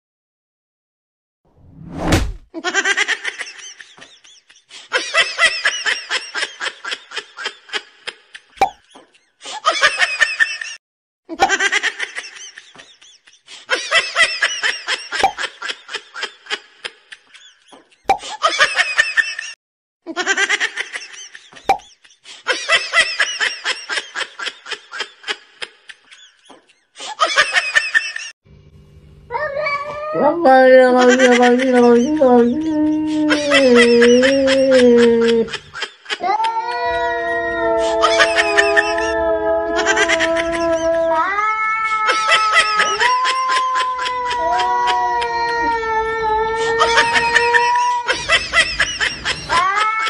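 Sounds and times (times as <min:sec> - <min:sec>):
falling whoosh: 0:01.6 - 0:02.4
high-pitched giggling laugh track: 0:02.6 - 0:28.3, 0:30.6 - 0:36.5, 0:37.8 - 0:41.3, 0:42.1 - 0:45.8, 0:46.6 - 0:50.0.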